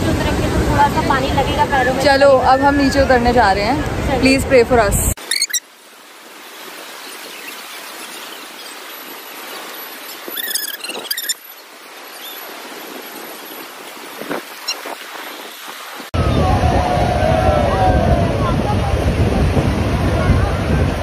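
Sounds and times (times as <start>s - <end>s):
surf washing over sand: 0.0s - 21.0s
short high-pitched squeal: 5.2s - 5.7s, 10.3s - 11.5s.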